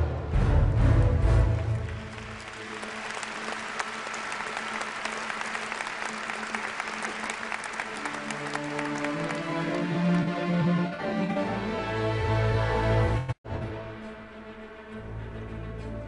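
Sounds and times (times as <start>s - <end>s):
audience applauding: 1.6s - 10.6s.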